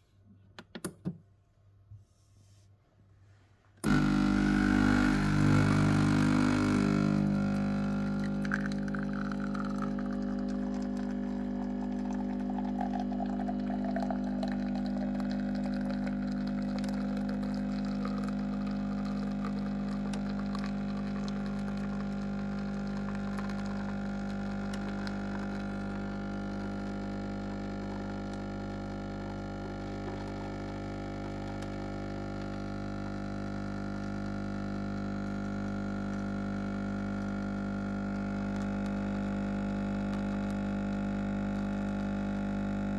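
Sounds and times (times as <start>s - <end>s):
coffee running into cup: 3.8s - 35.1s
coffee machine pump humming: 3.8s - 42.9s.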